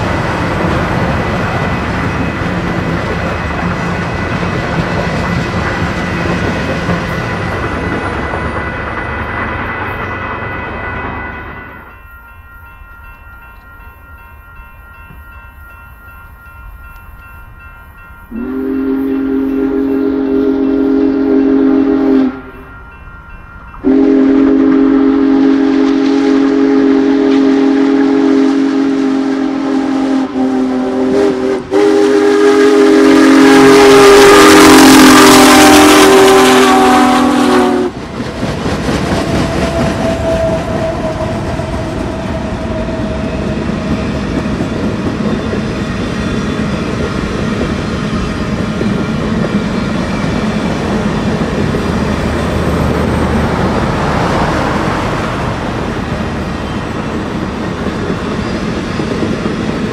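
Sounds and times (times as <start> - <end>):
train rolling and wheel clatter: 0.0 - 59.9
deep steam whistle: 18.3 - 22.7, 23.8 - 38.1, 39.0 - 47.7.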